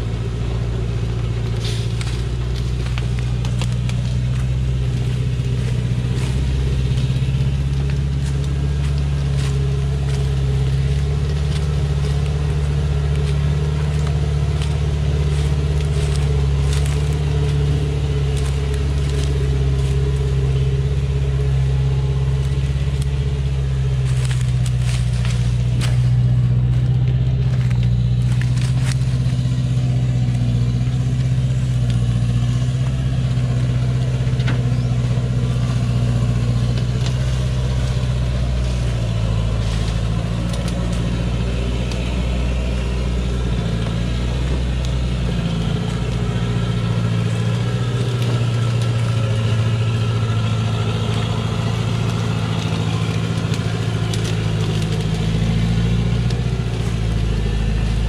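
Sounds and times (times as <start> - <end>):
branches crackling under wheels: 0.0 - 58.0
diesel truck engine running: 0.0 - 58.0.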